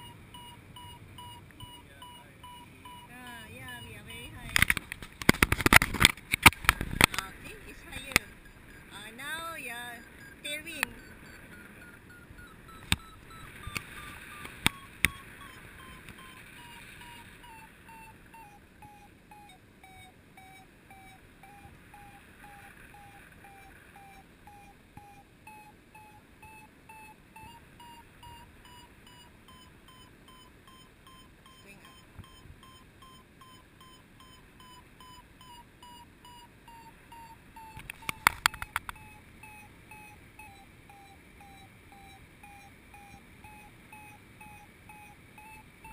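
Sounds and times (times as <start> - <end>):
short electronic beeps: 0.0 - 4.8, 5.7 - 45.9
sharp clicks: 4.4 - 8.9, 12.7 - 17.6, 37.1 - 39.6.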